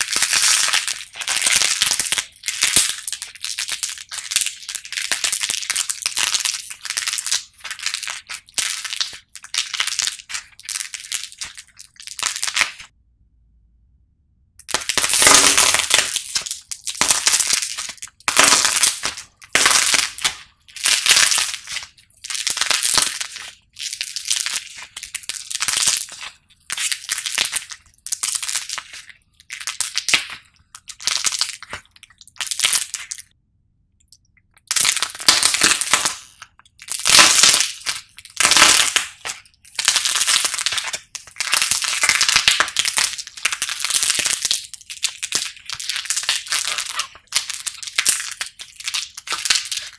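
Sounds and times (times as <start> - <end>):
clay figure crunching: 14.6 - 33.3, 34.6 - 49.9.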